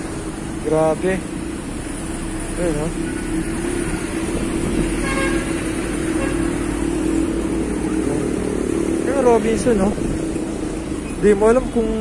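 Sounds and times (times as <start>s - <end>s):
road and wind noise: 0.0s - 12.0s
vehicle horn toot: 5.0s - 6.6s.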